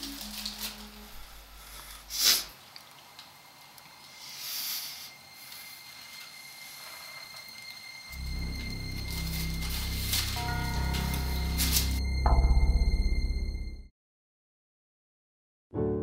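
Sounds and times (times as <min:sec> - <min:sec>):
low music notes: 0:00.0 - 0:01.6, 0:07.6 - 0:13.9
man breathing out through nose: 0:01.2 - 0:02.6, 0:04.1 - 0:05.9.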